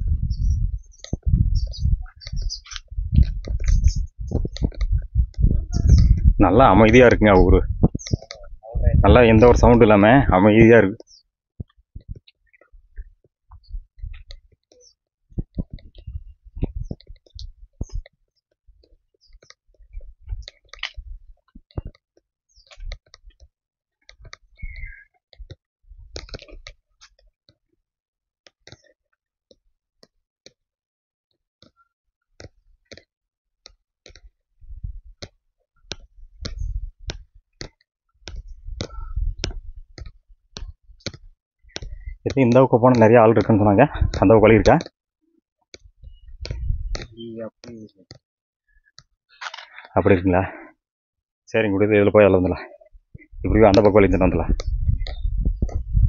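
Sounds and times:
footsteps on dirt and concrete: 0:02.0 - 0:05.4.

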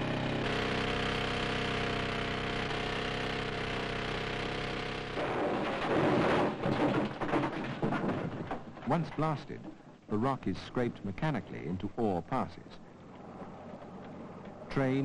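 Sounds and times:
machine drone: 0:00.0 - 0:07.3.

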